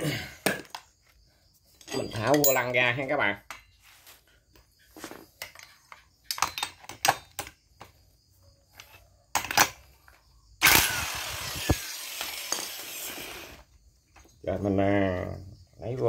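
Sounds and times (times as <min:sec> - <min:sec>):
metal socket clinks: 0:01.8 - 0:03.0
power tool whirring: 0:10.6 - 0:13.7.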